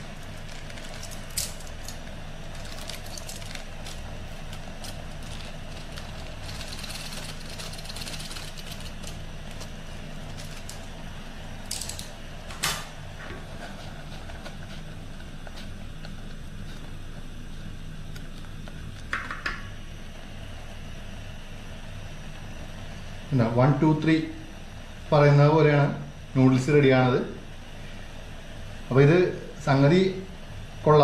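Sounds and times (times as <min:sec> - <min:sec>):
pot of water boiling: 0:00.0 - 0:12.4
gas stove burning: 0:00.0 - 0:31.0.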